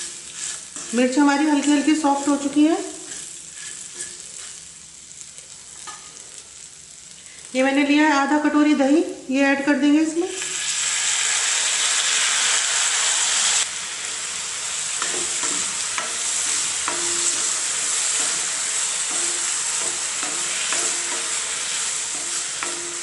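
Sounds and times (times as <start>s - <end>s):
wooden spatula scraping pan: 0.0s - 1.2s, 2.9s - 4.6s
food sizzling in a pan: 0.0s - 23.0s.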